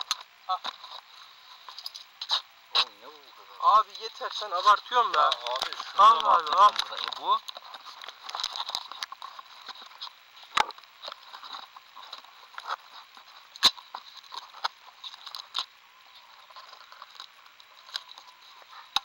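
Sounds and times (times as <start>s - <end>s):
tape crinkling and scraping: 3.8s - 19.0s.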